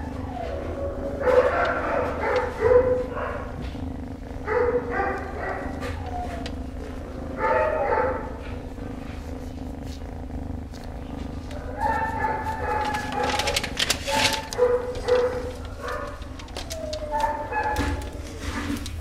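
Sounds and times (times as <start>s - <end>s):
dogs whining and barking: 0.0s - 3.8s, 4.4s - 6.7s, 7.3s - 8.5s, 11.5s - 18.9s
kitten purring: 0.0s - 19.0s.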